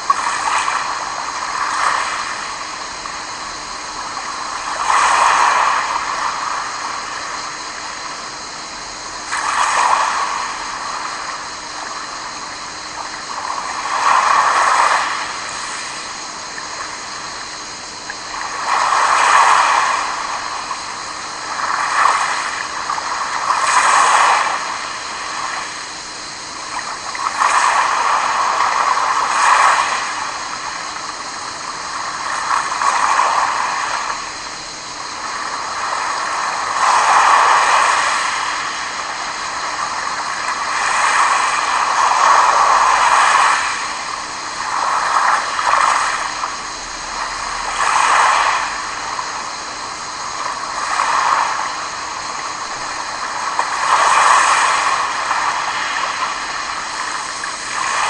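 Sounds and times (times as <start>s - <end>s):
soft sea hiss: 0.0s - 58.0s
waves washing over pebble beach: 35.2s - 49.4s, 50.5s - 58.0s.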